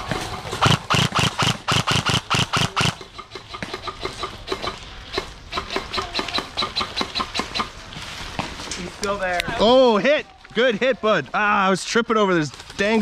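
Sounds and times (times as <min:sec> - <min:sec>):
airsoft guns firing: 0:00.0 - 0:03.0.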